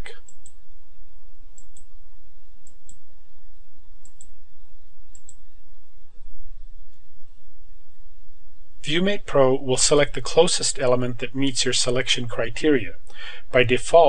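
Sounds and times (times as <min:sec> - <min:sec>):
steady low hum: 0:00.0 - 0:14.0
computer mouse clicking: 0:01.6 - 0:01.9, 0:04.0 - 0:04.3, 0:05.1 - 0:05.4.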